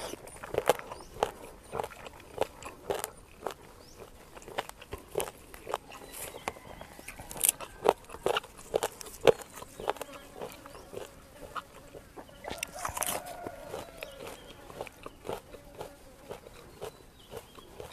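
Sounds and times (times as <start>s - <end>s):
chicken clucking: 0.0s - 17.9s
crunching clicks of eating: 0.0s - 17.9s
chicken drawn-out call: 5.8s - 8.5s, 10.0s - 15.4s.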